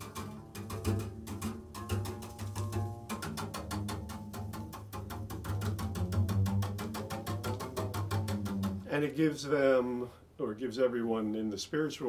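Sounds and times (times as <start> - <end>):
rapid percussive taps: 0.0 - 8.9
double bass tone: 0.0 - 10.1.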